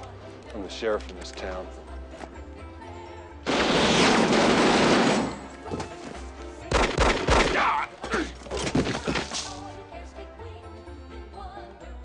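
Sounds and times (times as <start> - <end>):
film score music: 0.0 - 12.0
rapid gunfire: 3.5 - 5.3.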